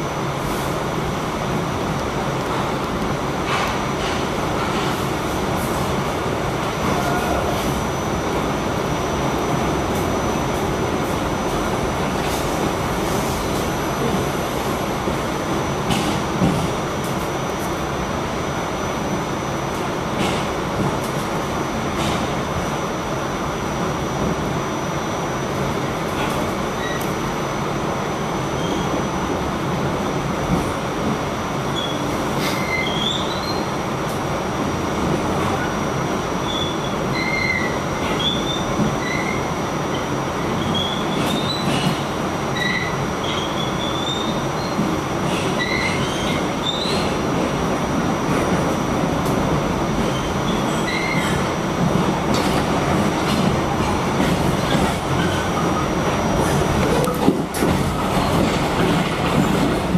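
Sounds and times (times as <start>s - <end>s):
subway train wheels rumbling on rail: 0.0s - 59.9s
high wheel squeals: 36.4s - 39.5s.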